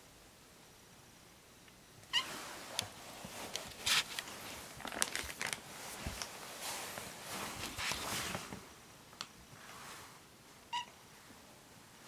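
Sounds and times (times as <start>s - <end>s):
rustling and scuffing: 2.2s - 8.7s.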